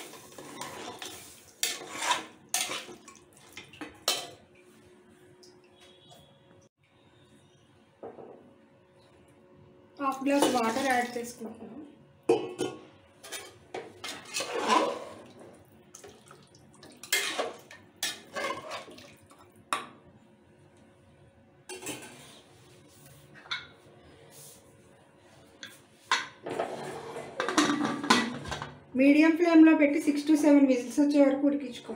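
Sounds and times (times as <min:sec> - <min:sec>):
metal ladle scraping a pot: 0:00.0 - 0:02.9, 0:13.2 - 0:15.4, 0:17.0 - 0:18.9, 0:26.4 - 0:28.2.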